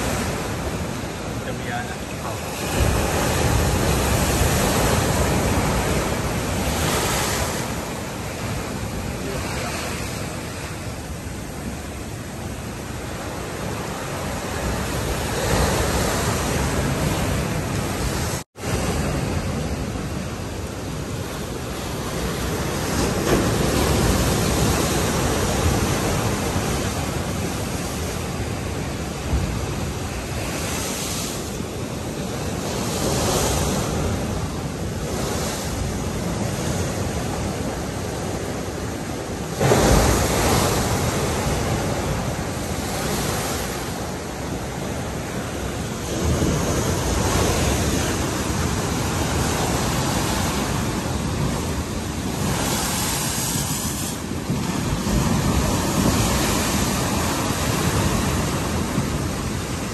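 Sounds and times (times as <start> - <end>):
surf breaking against sea wall: 0.0 - 20.1, 21.6 - 59.9
wind buffeting microphone: 0.0 - 59.9.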